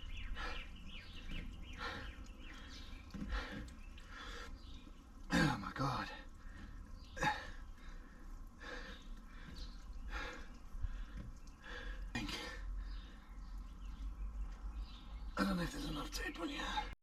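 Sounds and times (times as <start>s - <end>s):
man breathing heavily: 0.1s - 4.8s, 6.3s - 13.4s.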